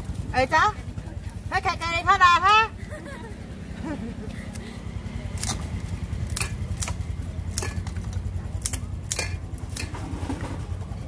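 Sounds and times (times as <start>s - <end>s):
steady low hum: 0.0s - 11.0s
scissors snipping seafood: 5.3s - 9.9s.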